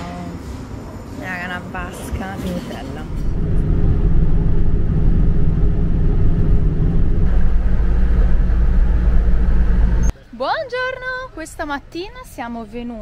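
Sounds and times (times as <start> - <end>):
car engine and road rumble: 2.2 - 10.2.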